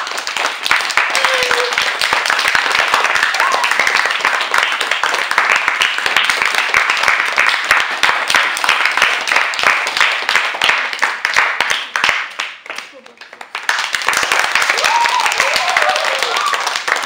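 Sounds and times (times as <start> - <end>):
children applauding: 0.0 - 17.0.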